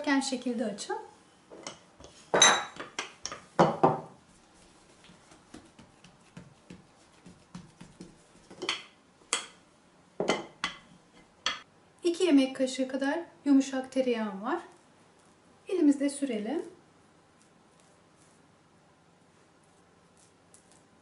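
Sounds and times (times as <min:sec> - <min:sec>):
hands rubbing dough: 0:04.2 - 0:08.9, 0:16.2 - 0:21.0.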